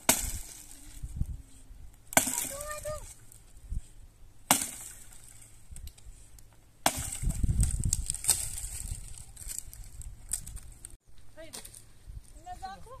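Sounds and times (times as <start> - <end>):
axe blows chopping firewood: 0.0 - 0.6, 2.1 - 2.8, 4.5 - 5.0, 6.8 - 8.5
wood splintering and crackling: 2.0 - 3.5, 4.5 - 11.0.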